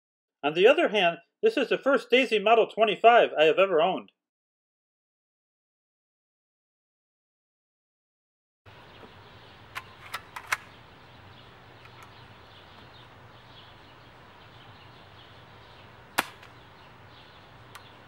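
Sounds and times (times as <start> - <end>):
sharp clicks: 9.7 - 10.8, 11.8 - 12.2, 16.2 - 16.6, 17.7 - 18.0.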